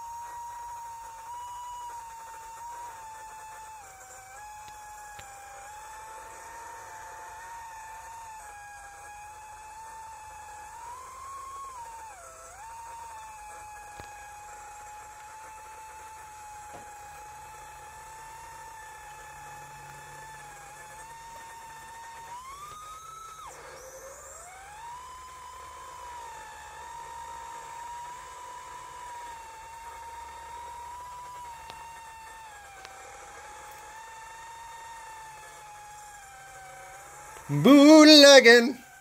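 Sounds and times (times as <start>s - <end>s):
drone motors whining: 0.0s - 39.0s.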